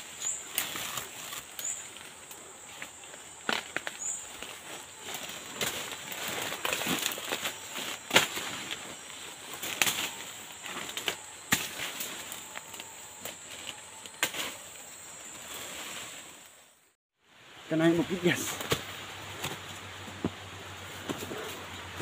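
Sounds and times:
footsteps crunching dry leaves: 0.0s - 14.8s
brushing through undergrowth: 0.0s - 17.0s
high insect drone: 0.0s - 22.0s
twigs snapping: 0.5s - 8.8s, 9.5s - 14.5s.

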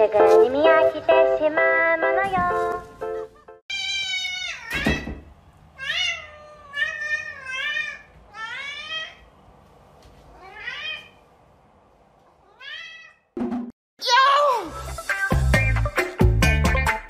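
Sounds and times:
cat meowing: 3.7s - 5.1s, 5.8s - 9.3s, 10.3s - 11.2s, 12.4s - 13.4s.

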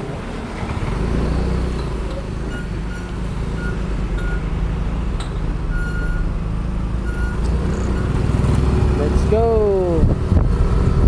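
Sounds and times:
scooter engine running: 0.0s - 5.0s, 6.2s - 9.4s
road and wind rumble: 0.0s - 11.0s.

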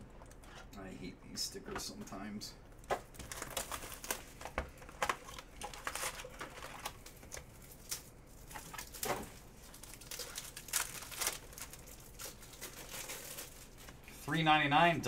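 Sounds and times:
foil wrappers crinkling: 2.8s - 15.0s
foil pack tearing open: 3.1s - 14.0s.

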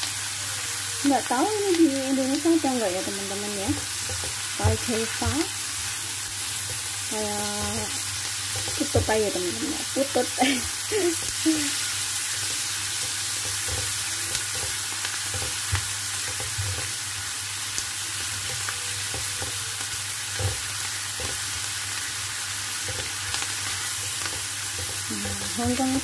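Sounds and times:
food sizzling in frying pan: 0.0s - 26.0s.

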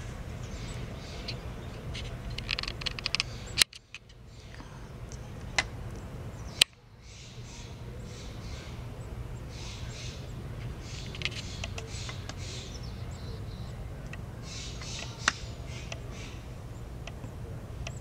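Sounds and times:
steady low rumble: 0.0s - 18.0s
sharp clicks: 1.9s - 6.8s, 10.9s - 12.4s.

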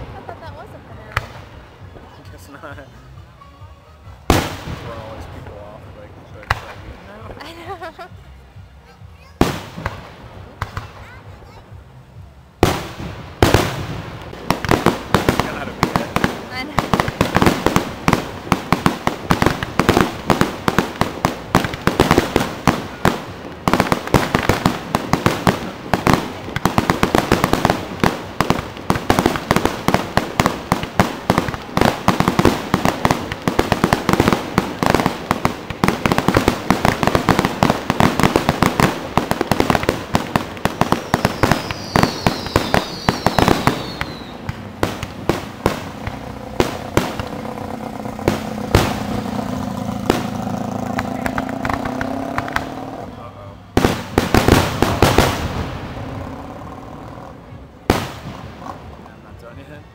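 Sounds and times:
fireworks bursting: 4.1s - 11.7s, 12.6s - 59.9s
fireworks falling whistles: 39.8s - 47.4s.

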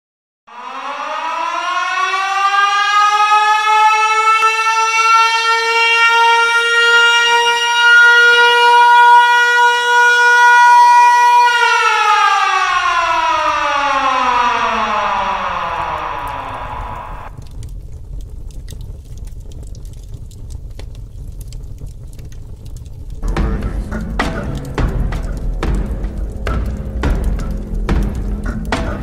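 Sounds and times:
siren wailing: 0.5s - 17.5s, 26.1s - 29.0s.

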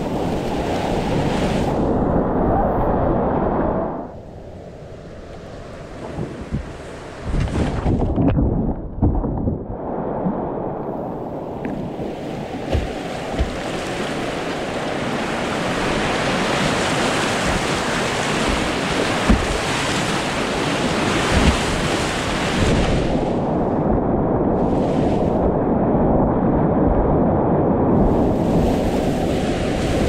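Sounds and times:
whitewater rapids rushing: 12.4s - 22.8s
short knocks: 18.4s - 19.7s.

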